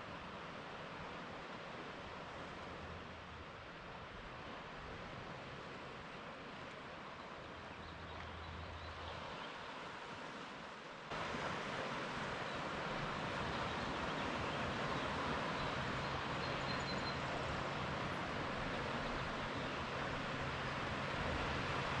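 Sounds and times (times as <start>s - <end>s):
wind: 0.0s - 22.0s
ocean surf rushing: 11.1s - 22.0s.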